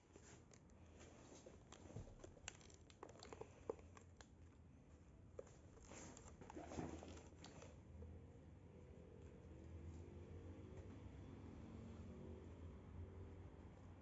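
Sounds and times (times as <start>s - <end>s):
fabric rustling: 5.4s - 7.8s.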